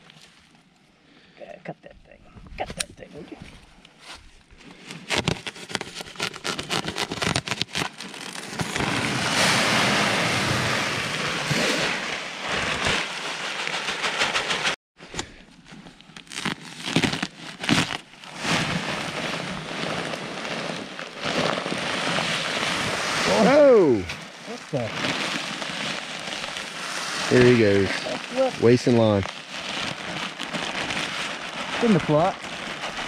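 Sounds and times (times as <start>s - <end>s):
plastic bag crinkling: 4.7s - 9.2s, 16.0s - 23.4s, 24.0s - 33.0s
pellets pouring into plastic hopper: 24.7s - 33.0s.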